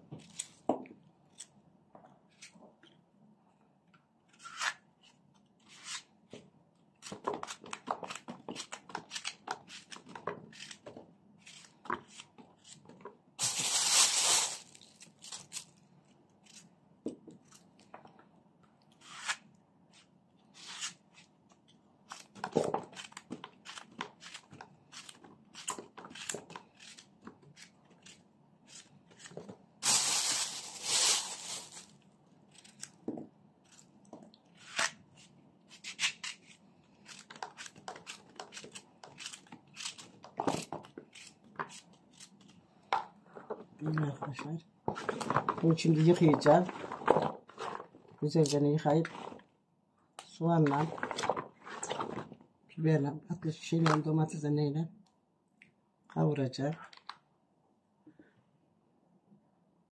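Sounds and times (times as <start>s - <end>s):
knife cutting zucchini: 7.0s - 13.0s, 22.1s - 29.4s, 35.7s - 42.4s
loud rustling: 29.8s - 31.9s.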